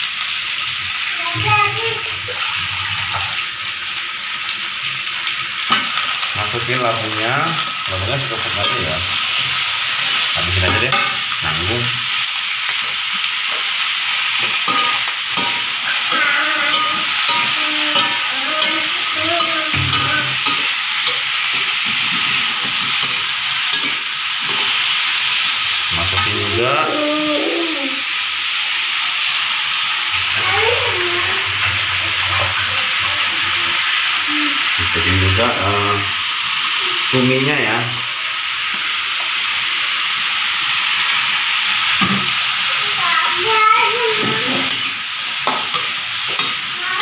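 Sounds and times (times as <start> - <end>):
vegetables sizzling in hot oil: 0.0 - 47.0
spatula scraping a wok: 14.3 - 24.9.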